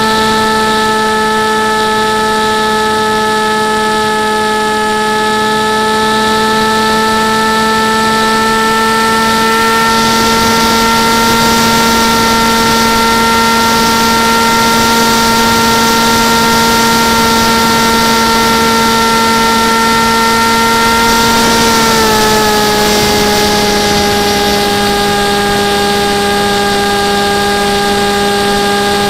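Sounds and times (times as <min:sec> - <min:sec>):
motor and propeller whine: 0:00.0 - 0:29.0
wind noise: 0:08.8 - 0:29.0.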